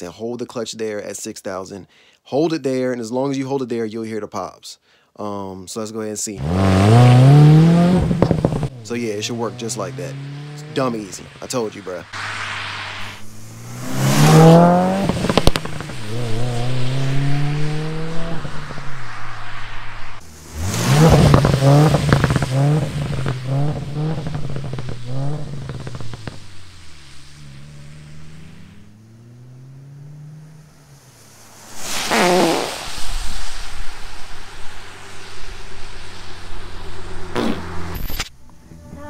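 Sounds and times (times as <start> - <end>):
exhaust pops and crackles: 6.4 - 12.3, 14.2 - 19.2, 20.2 - 27.6, 31.9 - 34.1, 37.2 - 39.0
car engine revving: 6.4 - 33.2, 33.9 - 39.0
vehicle passing: 6.4 - 39.0.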